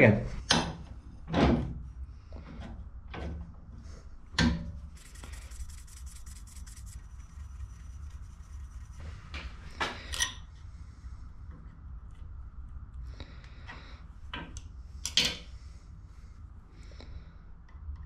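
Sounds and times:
marker scribbling on steel: 4.9s - 9.3s.

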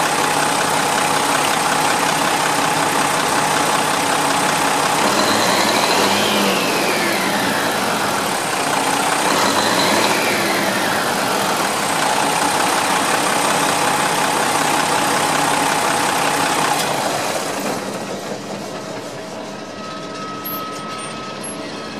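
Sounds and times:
diesel engine idling: 0.0s - 19.7s
faint high whine: 17.9s - 21.9s.

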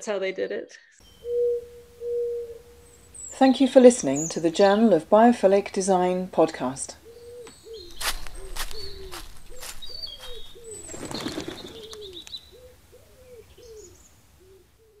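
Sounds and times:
low arched bird calls: 1.0s - 5.0s, 7.0s - 15.0s
high bird chirps: 7.1s - 12.6s
sharp clicks: 11.8s - 12.4s.

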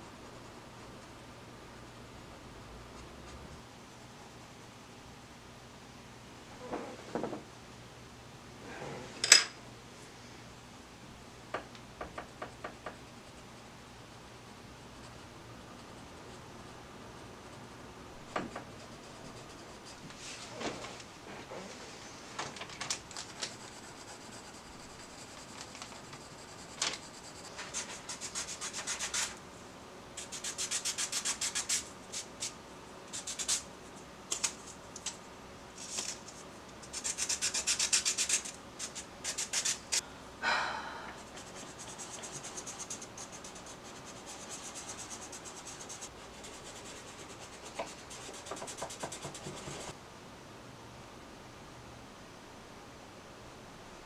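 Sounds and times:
pencil scratching on paper: 18.4s - 20.0s, 23.3s - 29.4s, 36.9s - 39.8s, 41.3s - 49.9s
pencil rubbed on sandpaper: 23.3s - 29.4s, 30.2s - 32.5s, 36.9s - 39.8s, 41.3s - 49.9s.

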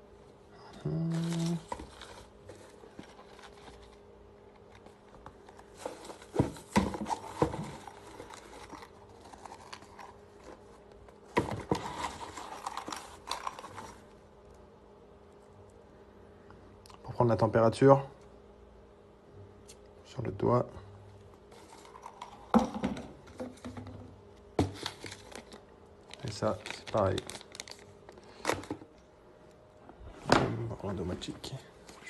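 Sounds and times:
steady low hum: 0.0s - 32.0s
paper crinkling and rustling: 1.2s - 14.2s, 21.5s - 22.5s, 24.6s - 28.8s.

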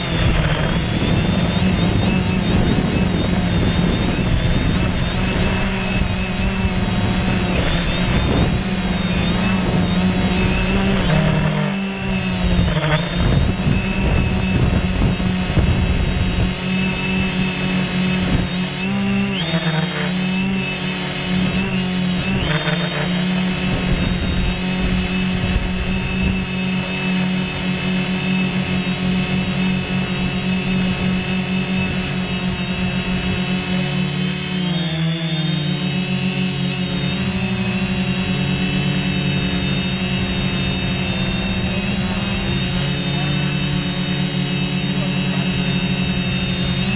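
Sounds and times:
low buffeting: 0.0s - 17.3s
drone propellers whining: 0.0s - 46.9s.

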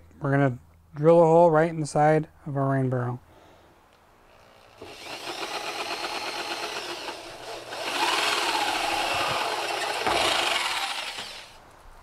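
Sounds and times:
electric drill boring plastic: 4.4s - 11.6s.

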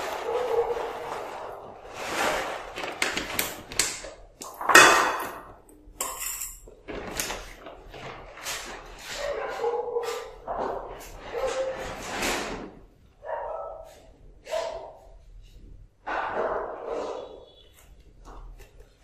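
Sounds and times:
cats knocking and scraping bowls: 0.0s - 12.9s.

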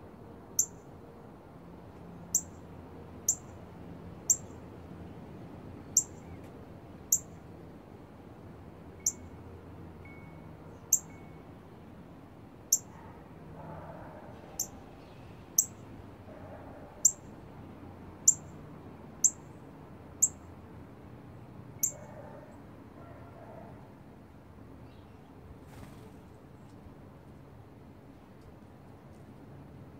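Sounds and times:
bird chip calls: 4.3s - 4.6s, 5.9s - 6.4s, 7.1s - 7.3s, 10.8s - 11.2s, 12.7s - 13.0s, 14.4s - 15.0s, 16.9s - 17.3s, 18.3s - 18.6s, 21.8s - 22.2s.

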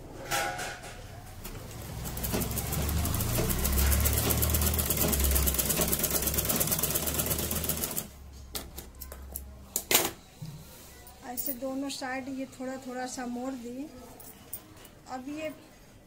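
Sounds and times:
sewing machine running: 1.4s - 8.2s.

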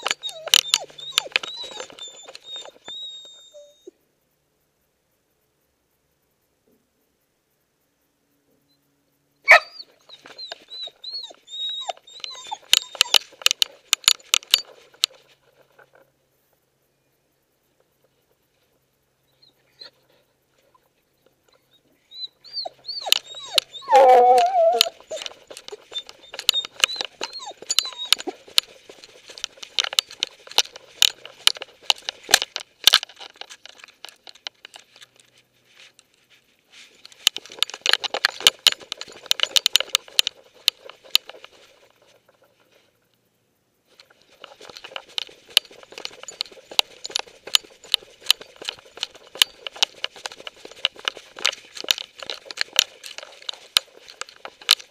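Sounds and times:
dog whining: 0.0s - 3.9s, 9.5s - 13.6s, 21.5s - 28.5s
rustling through plants and grass: 9.4s - 43.1s, 43.7s - 54.9s.

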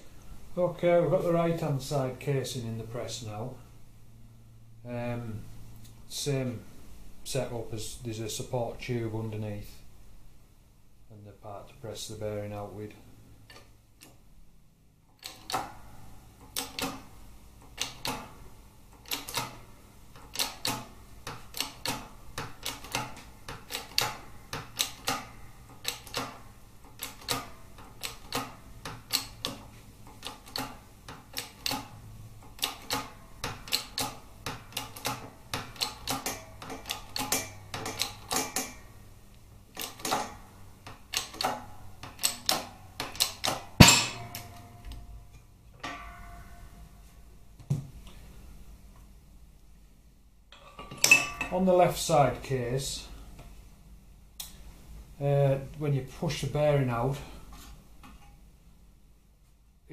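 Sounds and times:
shop press clicking: 15.2s - 15.8s, 16.4s - 38.9s, 39.7s - 45.0s.

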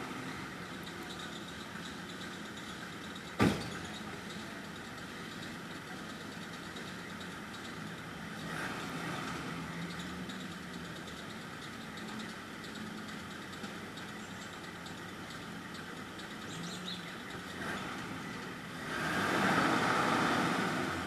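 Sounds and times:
vehicle engine idling: 0.0s - 18.9s
sharp thump: 3.4s - 3.8s.

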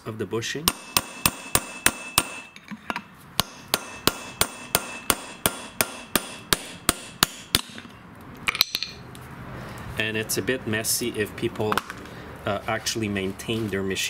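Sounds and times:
hammer striking steel punch: 0.7s - 2.6s, 3.4s - 7.9s, 8.5s - 9.1s
metal clatter: 8.5s - 9.1s.

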